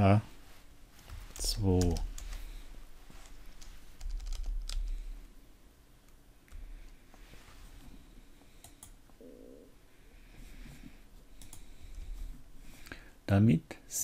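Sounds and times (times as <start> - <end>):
keyboard keystrokes: 4.0 - 5.0.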